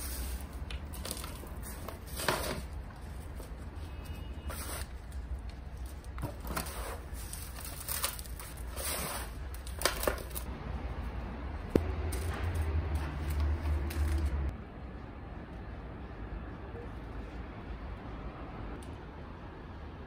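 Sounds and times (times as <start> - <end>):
newspaper crinkling: 4.5 - 10.5.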